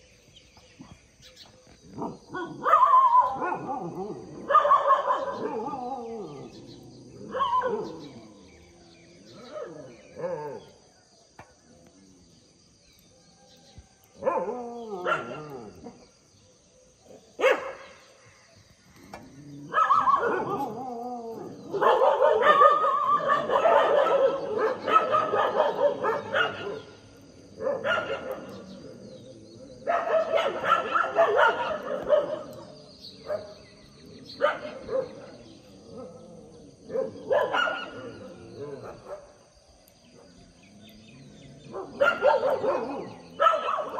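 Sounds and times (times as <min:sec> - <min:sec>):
dogs barking: 0:01.9 - 0:06.1, 0:07.2 - 0:08.2, 0:14.2 - 0:16.0, 0:17.3 - 0:18.1, 0:19.6 - 0:28.8, 0:29.7 - 0:39.4, 0:41.6 - 0:43.9.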